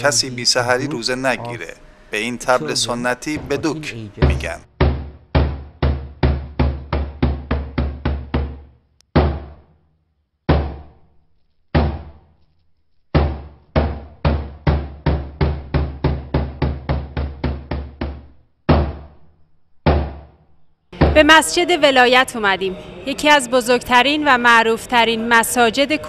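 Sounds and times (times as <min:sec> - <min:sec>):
large drum beaten with stick: 0:03.2 - 0:08.6, 0:13.2 - 0:19.0.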